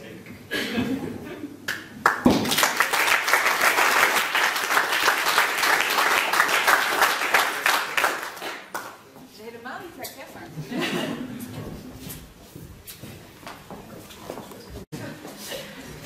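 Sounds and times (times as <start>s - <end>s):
room of people applauding: 1.7s - 9.1s.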